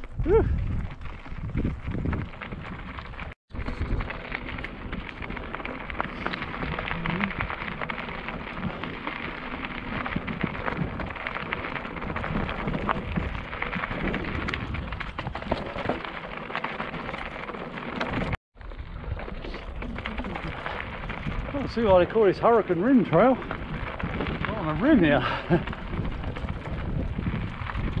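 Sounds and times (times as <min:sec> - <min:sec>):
bike clicking and rattling: 0:00.0 - 0:28.0
tyres crunching over gravel: 0:00.0 - 0:28.0.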